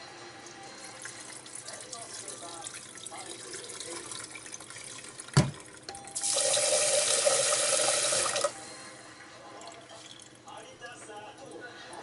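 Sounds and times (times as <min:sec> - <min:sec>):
faucet running into pot: 0:00.8 - 0:08.5.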